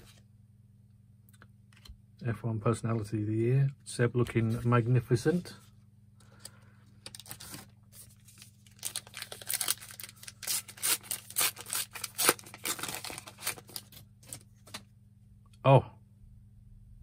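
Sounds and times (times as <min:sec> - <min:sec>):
cards rustling: 0:06.4 - 0:14.9
wrapper tearing and crinkling: 0:07.1 - 0:14.8.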